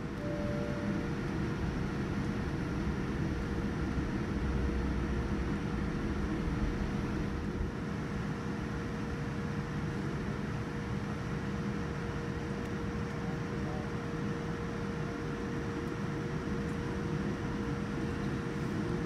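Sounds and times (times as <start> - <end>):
airplane cabin rumble: 0.0 - 19.0
faint steady hum: 0.0 - 19.0.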